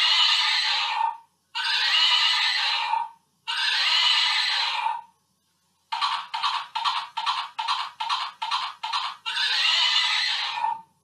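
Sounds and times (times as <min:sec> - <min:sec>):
recorded horse whinny: 0:00.0 - 0:05.1, 0:09.2 - 0:10.8.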